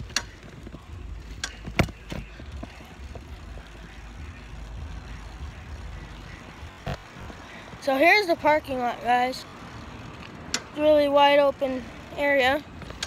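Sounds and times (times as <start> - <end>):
bicycle rumbling on pavement: 0.0 - 13.0
sharp clicks or rattles: 10.2 - 10.8.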